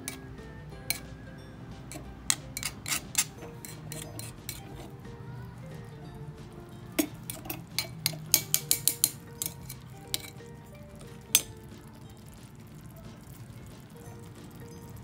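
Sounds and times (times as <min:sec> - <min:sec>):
soft background music: 0:00.0 - 0:15.0
metal spatula clinking on wok: 0:00.9 - 0:01.1, 0:01.9 - 0:04.8, 0:07.0 - 0:10.4, 0:11.3 - 0:11.6.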